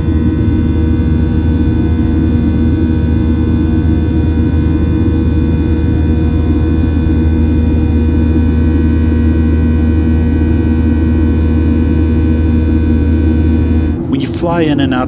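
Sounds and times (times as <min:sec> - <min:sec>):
airplane cabin drone: 0:00.0 - 0:15.0
steady tones: 0:12.3 - 0:15.0.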